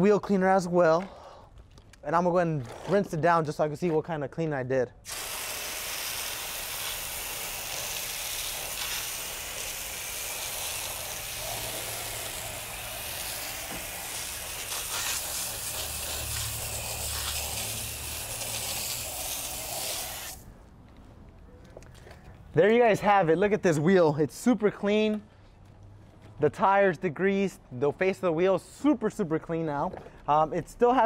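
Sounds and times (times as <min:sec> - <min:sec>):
water spray hissing: 0:05.1 - 0:20.4.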